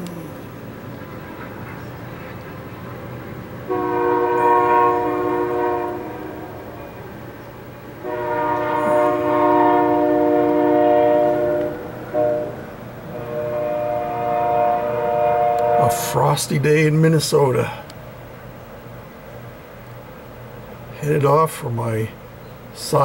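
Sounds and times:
rumble of passing train: 0.0 - 23.0
locomotive air horn blasts: 0.9 - 16.6.

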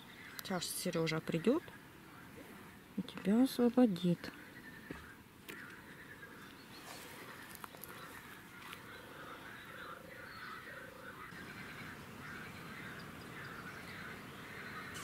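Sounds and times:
faint animal calls: 4.2 - 15.0.

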